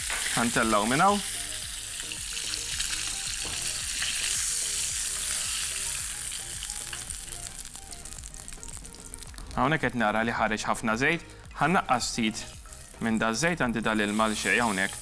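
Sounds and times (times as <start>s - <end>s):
fish sizzling in frying pan: 0.0s - 9.8s, 11.2s - 15.0s.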